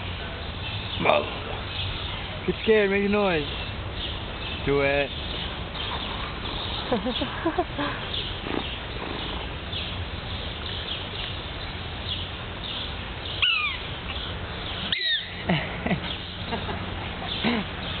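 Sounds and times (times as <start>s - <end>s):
prairie dog barking chirps: 13.4s - 13.8s, 14.9s - 15.3s.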